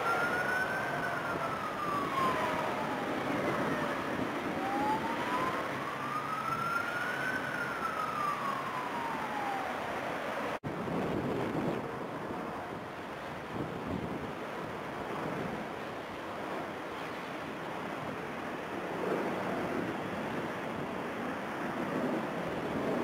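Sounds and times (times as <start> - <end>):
siren wailing: 0.0 - 10.6
jet engine roar: 0.0 - 13.0.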